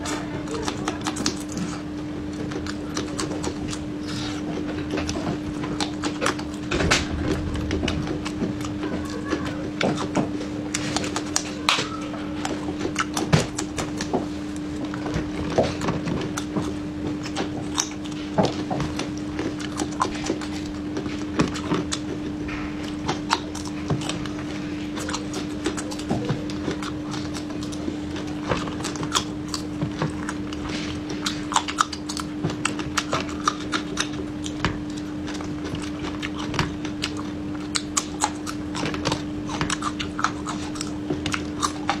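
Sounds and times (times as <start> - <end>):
chewing and crunching peppers: 0.0 - 42.0
steady low hum: 0.0 - 42.0.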